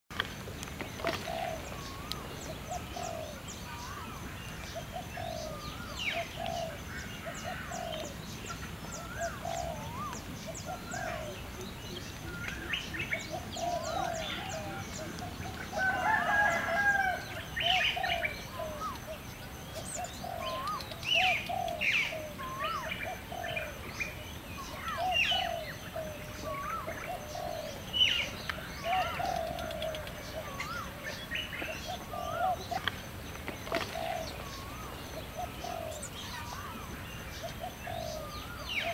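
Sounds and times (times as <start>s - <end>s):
birds chirping: 0.1s - 38.9s
rooster crowing: 15.7s - 17.4s.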